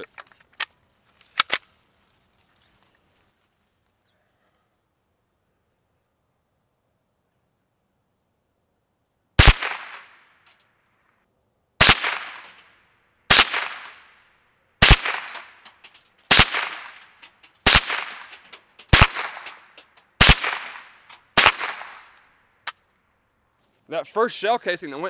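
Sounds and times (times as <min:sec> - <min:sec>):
rifle shots with echo: 0:09.4 - 0:10.3, 0:11.8 - 0:12.7, 0:13.3 - 0:14.1, 0:14.8 - 0:22.2.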